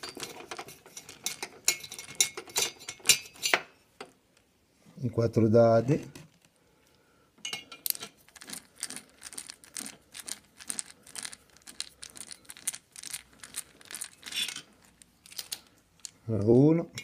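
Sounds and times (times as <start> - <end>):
small metal scrapes: 0.0 - 3.6, 7.5 - 16.2.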